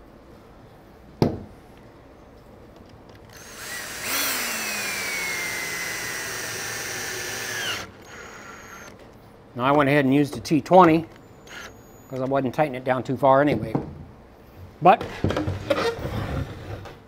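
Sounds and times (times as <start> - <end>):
cordless drill driving screw: 3.3 - 9.0, 11.5 - 11.8.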